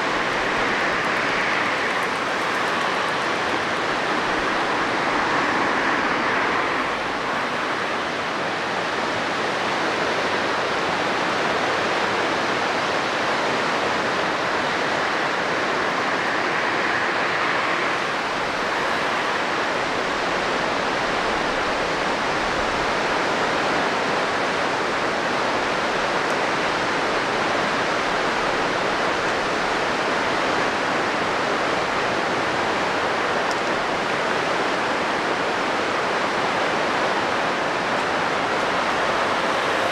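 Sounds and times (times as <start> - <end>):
steady rushing noise: 0.0 - 39.9.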